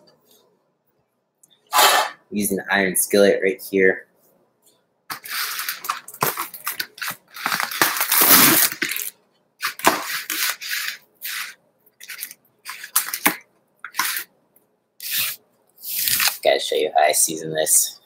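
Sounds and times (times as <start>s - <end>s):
packaging crinkling and tearing: 5.1s - 14.3s, 15.0s - 16.4s.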